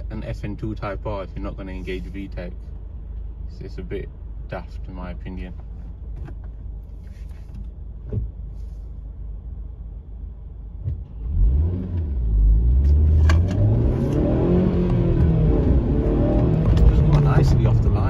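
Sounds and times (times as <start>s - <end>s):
car engine revving from cabin: 10.8s - 18.0s.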